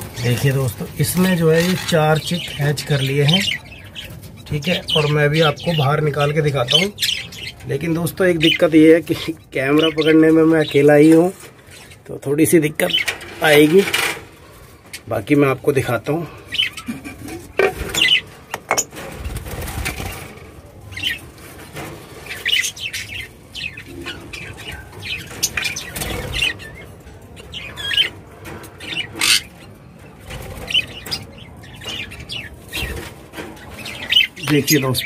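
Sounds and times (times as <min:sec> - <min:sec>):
birds flapping wings: 0:18.8 - 0:20.6.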